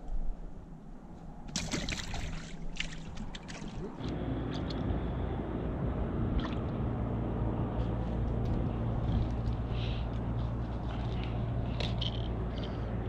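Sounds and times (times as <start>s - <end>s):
boat motor humming: 2.8s - 13.0s.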